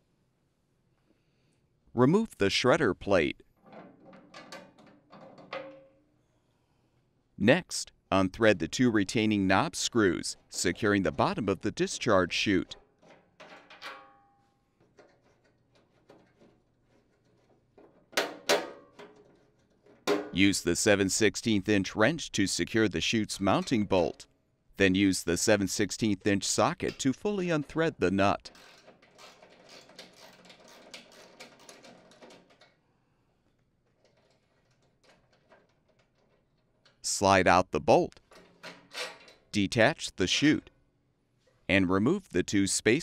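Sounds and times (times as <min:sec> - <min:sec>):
screws turned by hand clicking: 0:28.5 - 0:32.8.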